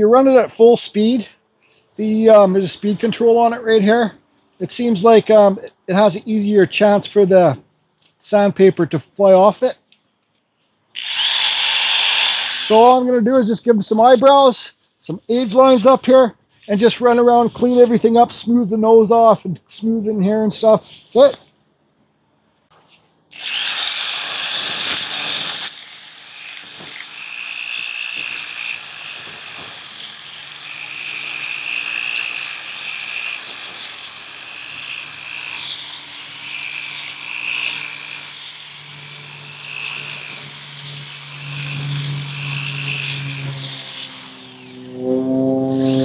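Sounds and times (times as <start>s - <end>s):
belt sander grinding wood: 11.0s - 13.2s, 23.4s - 46.0s.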